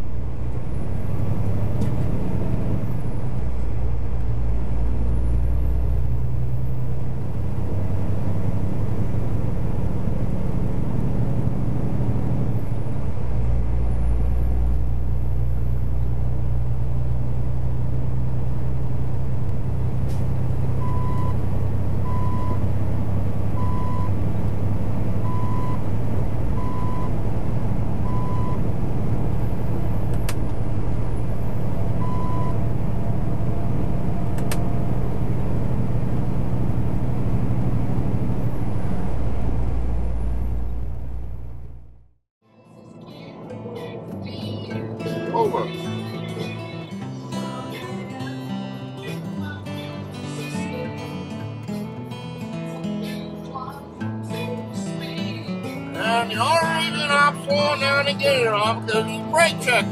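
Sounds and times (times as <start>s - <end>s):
diesel engine drone: 0.0s - 42.2s, 43.2s - 59.9s
road noise: 0.0s - 42.2s, 43.0s - 59.9s
sharp clicks: 34.4s - 34.7s.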